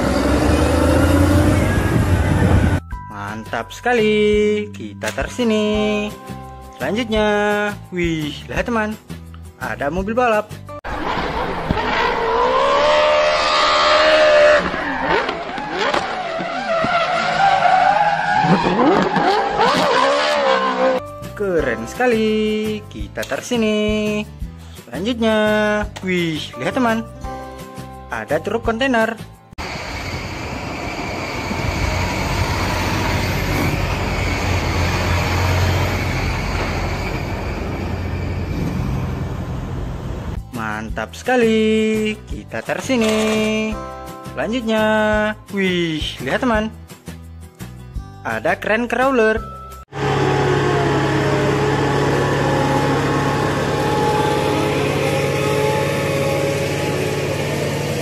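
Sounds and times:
car engine revving: 0:00.0 - 0:02.8, 0:10.9 - 0:21.0, 0:29.6 - 0:40.4, 0:49.9 - 0:58.0
tyres skidding and squealing: 0:00.0 - 0:02.8, 0:10.9 - 0:21.0, 0:29.6 - 0:40.4, 0:49.9 - 0:58.0.

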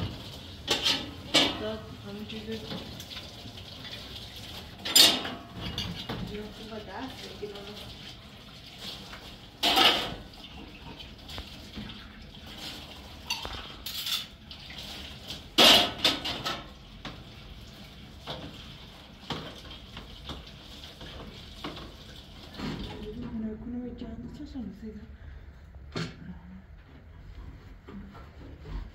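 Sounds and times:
dishes and cutlery clattering: 0:00.6 - 0:01.8, 0:04.8 - 0:06.3, 0:09.6 - 0:10.3, 0:13.2 - 0:14.4, 0:15.6 - 0:16.8
loud clanks of dishes: 0:00.7 - 0:01.6, 0:04.8 - 0:06.1, 0:09.6 - 0:10.2, 0:15.6 - 0:16.7.

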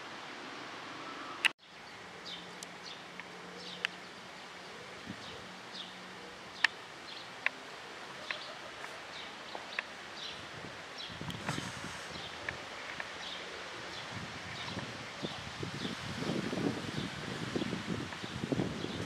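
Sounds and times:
steady background hiss: 0:00.0 - 0:19.0
small birds chirping: 0:01.1 - 0:16.1, 0:16.8 - 0:19.0.

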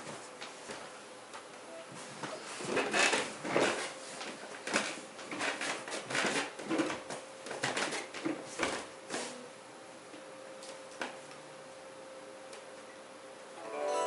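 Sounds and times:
faint steady hum: 0:09.4 - 0:14.0.

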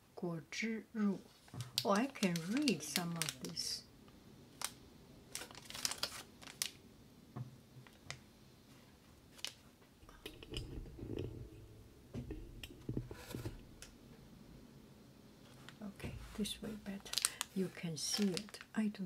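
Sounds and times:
plastic pouch crinkling: 0:01.3 - 0:03.8, 0:04.6 - 0:06.8, 0:09.3 - 0:09.6, 0:16.6 - 0:18.8
soft low bumps: 0:10.0 - 0:14.7.

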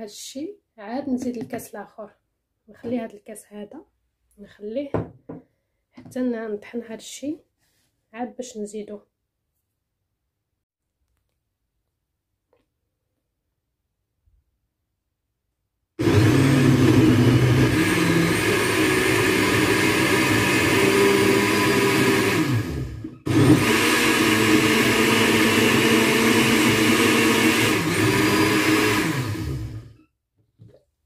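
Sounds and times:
blender motor running: 0:16.0 - 0:30.0.

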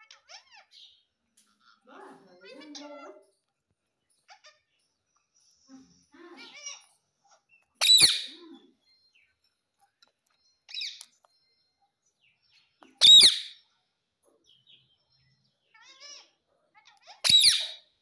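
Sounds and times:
parakeet chattering calls: 0:00.0 - 0:01.0, 0:06.4 - 0:08.4, 0:10.7 - 0:11.0, 0:13.0 - 0:13.7, 0:15.7 - 0:17.9
parakeet shrill screeches: 0:07.8 - 0:08.4, 0:13.0 - 0:13.6, 0:17.1 - 0:17.9.

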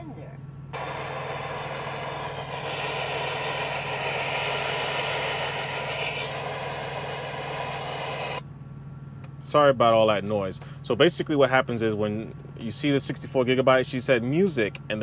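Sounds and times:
radio static hiss: 0:00.8 - 0:08.4.

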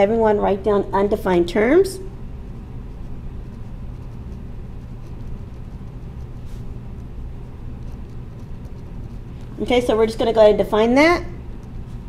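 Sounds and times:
low background rumble: 0:00.0 - 0:12.0
pen scratching on paper: 0:02.5 - 0:09.4.

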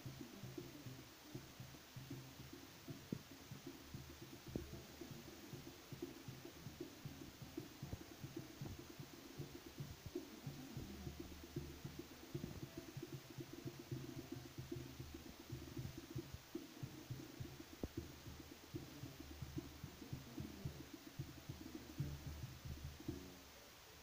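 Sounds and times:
distant drum thumps: 0:00.0 - 0:23.4
distant band music: 0:02.4 - 0:23.5.

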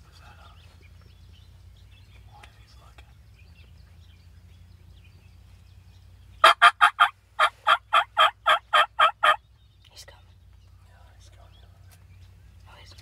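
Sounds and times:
turkey yelping: 0:06.4 - 0:09.4.

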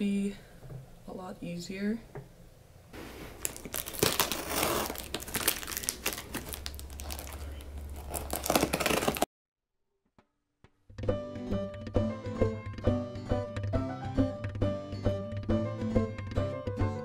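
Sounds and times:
packing tape being torn open: 0:03.4 - 0:09.3.

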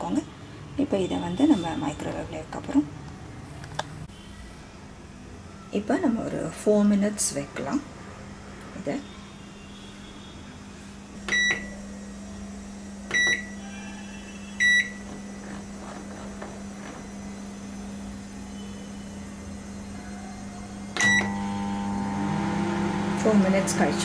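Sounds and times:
microwave running hum: 0:07.3 - 0:24.0
microwave beeping: 0:11.2 - 0:11.8, 0:13.0 - 0:20.2, 0:20.8 - 0:24.0.

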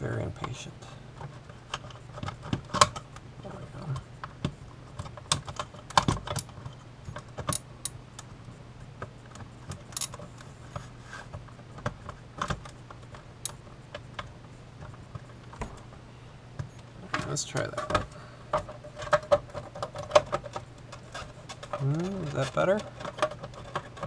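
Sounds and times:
faint low hum: 0:00.0 - 0:24.0
plastic parts clicking and tapping: 0:03.8 - 0:08.3, 0:11.3 - 0:15.8, 0:16.6 - 0:24.0.

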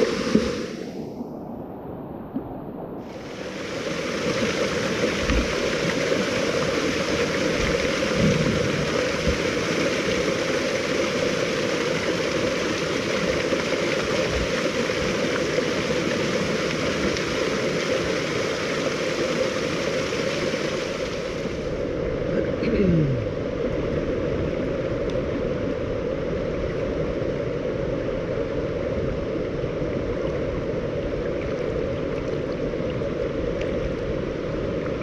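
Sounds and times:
rush of falling water: 0:00.0 - 0:01.1, 0:03.0 - 0:21.8.

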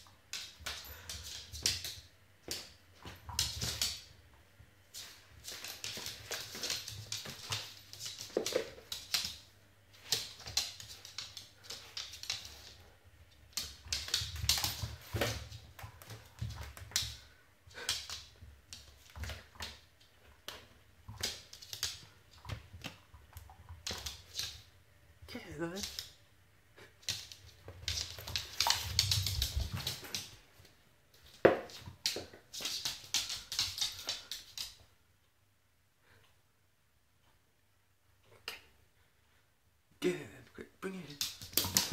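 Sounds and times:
dog claws clicking: 0:10.0 - 0:12.8, 0:20.5 - 0:24.6, 0:27.0 - 0:30.4, 0:31.4 - 0:34.8, 0:41.1 - 0:41.9.

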